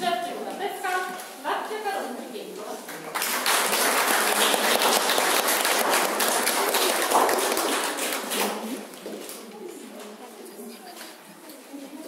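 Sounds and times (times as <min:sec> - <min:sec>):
audience applauding: 0:03.1 - 0:08.8.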